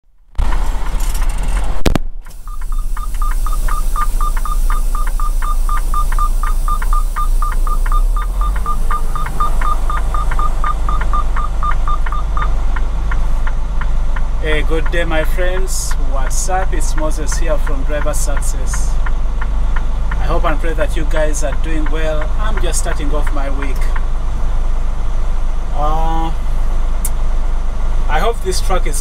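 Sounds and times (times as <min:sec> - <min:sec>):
truck diesel engine rumbling: 0:00.0 - 0:29.0
electronic warning chime beeping: 0:02.4 - 0:12.5.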